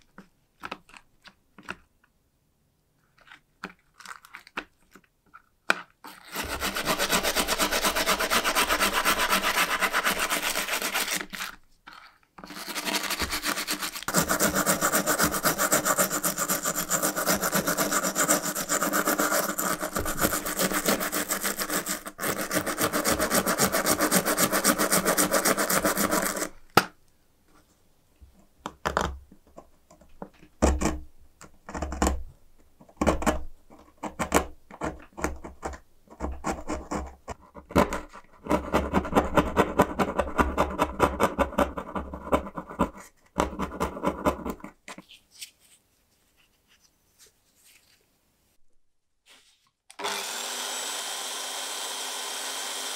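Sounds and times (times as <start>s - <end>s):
pointed tool scraping: 6.1s - 26.5s
brush scrubbing metal: 6.2s - 11.6s, 12.4s - 26.4s.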